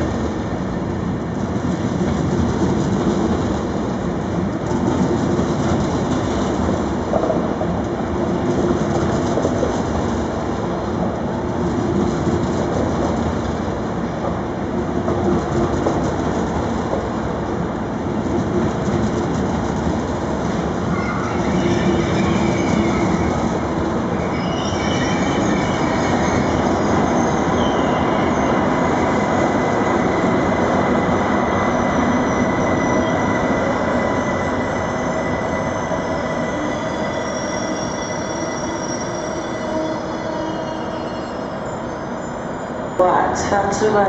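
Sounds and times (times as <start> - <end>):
train cars rumbling: 0.0 - 44.0
train wheel squeal: 20.9 - 43.0.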